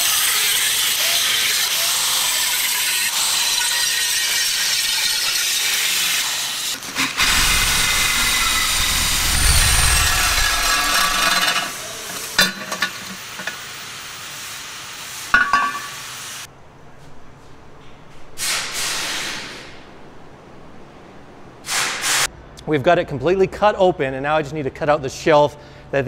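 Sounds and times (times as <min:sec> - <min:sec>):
angle grinder cutting metal: 0:07.2 - 0:11.8.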